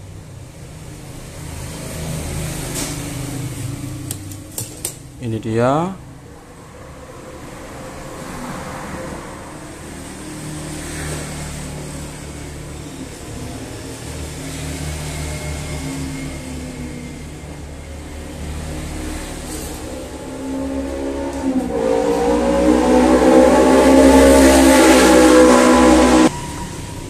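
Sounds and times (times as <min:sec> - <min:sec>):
engine running: 0:06.2 - 0:27.0.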